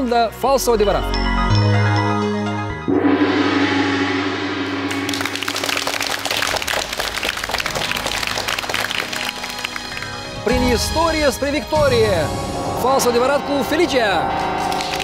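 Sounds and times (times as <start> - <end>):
ringing musical hit: 2.8 - 7.1
audience applauding: 4.9 - 10.5, 14.6 - 15.0.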